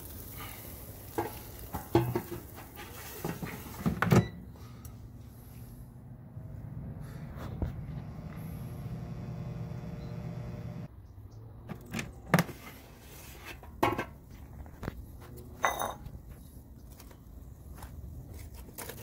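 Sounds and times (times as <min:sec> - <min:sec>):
air fryer fan humming: 0:06.4 - 0:10.9.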